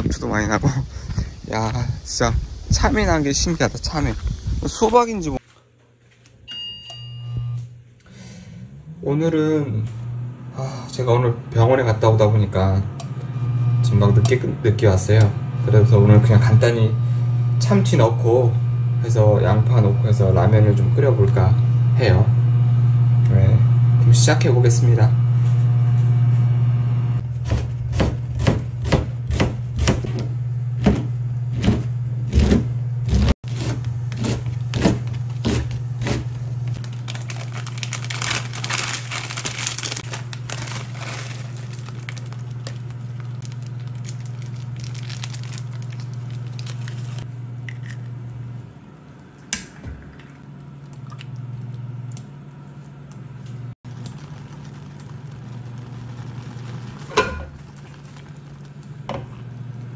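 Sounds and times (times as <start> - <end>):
induction cooktop humming: 0.0 - 59.9
knife chopping on a board: 27.4 - 36.3
water boiling in a pot: 53.8 - 59.9.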